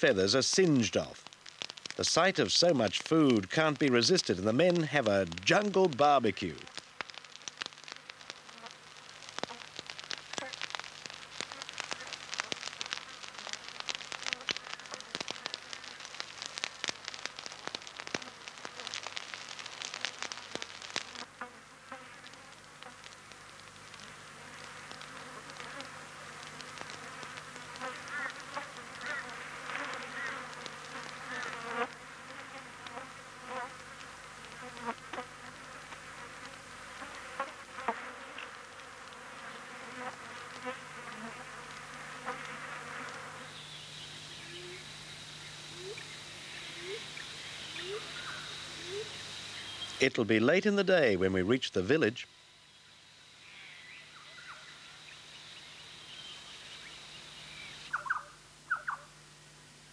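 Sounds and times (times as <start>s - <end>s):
wood fire crackling and popping: 0.0s - 50.1s
insects buzzing: 0.0s - 59.9s
chirps: 43.5s - 50.1s, 52.7s - 59.1s.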